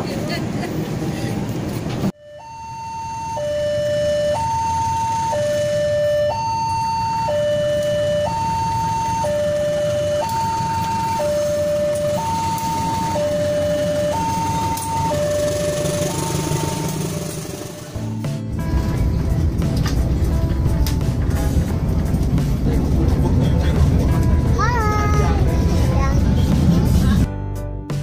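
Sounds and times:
two-tone crossing alarm: 2.2 - 17.8
passing diesel train rumble: 4.4 - 27.3.

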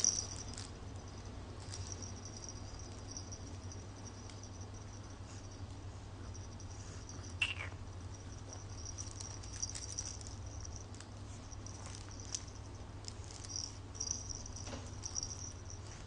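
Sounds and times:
plush toy fabric crinkling: 0.0 - 0.8, 1.6 - 3.2, 8.8 - 16.0.

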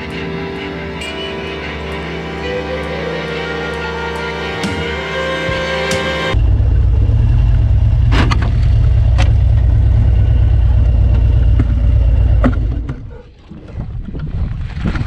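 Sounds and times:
motorcycle engine rumbling: 4.9 - 13.3.

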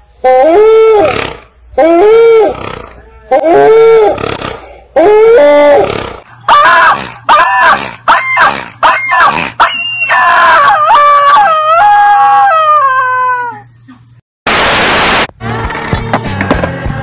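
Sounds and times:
rubber chicken toy squawking: 6.5 - 13.6.

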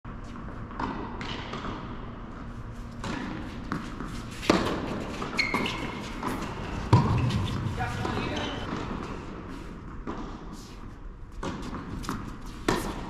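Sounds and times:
tennis ball bouncing: 0.6 - 2.2, 2.9 - 10.5, 11.3 - 13.0
tennis ball hit by rackets: 3.0 - 9.2, 11.4 - 13.0.

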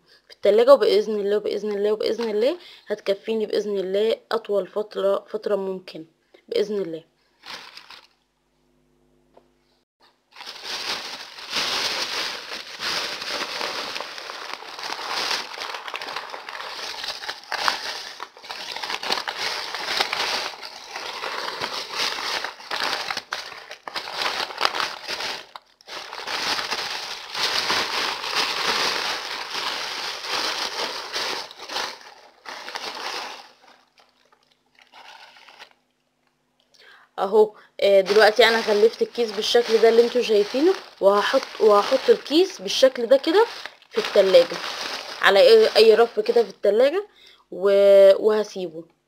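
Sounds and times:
plastic bag and paper crinkling: 1.5 - 2.6, 7.3 - 8.2, 10.3 - 35.8, 37.8 - 47.0.

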